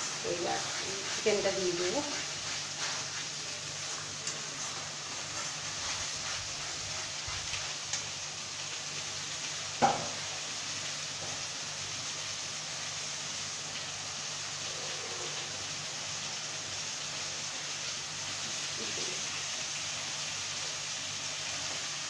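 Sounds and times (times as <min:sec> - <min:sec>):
spatula stirring and scraping: 0:00.0 - 0:08.0
spice paste sizzling in oil: 0:00.0 - 0:22.0.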